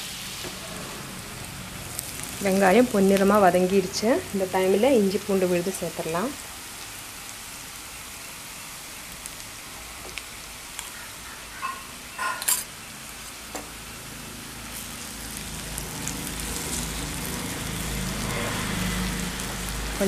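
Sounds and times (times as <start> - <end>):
onions sizzling in hot oil: 0.0 - 20.0
steel spoon clinking on pan: 11.6 - 12.7.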